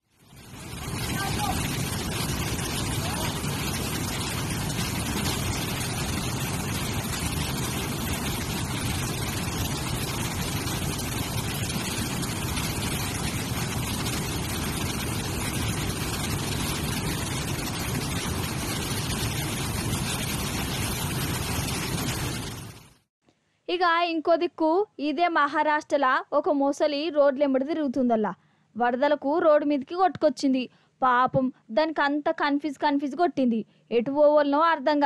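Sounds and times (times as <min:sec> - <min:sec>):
waterfall roaring: 0:00.3 - 0:22.9.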